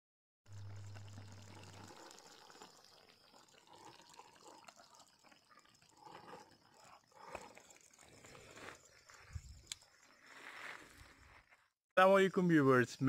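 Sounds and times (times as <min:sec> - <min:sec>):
low hum: 0:00.5 - 0:02.1.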